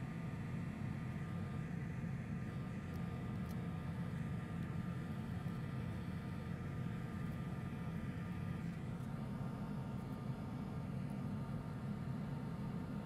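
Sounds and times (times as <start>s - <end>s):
equipment and fans humming: 0.0s - 13.0s.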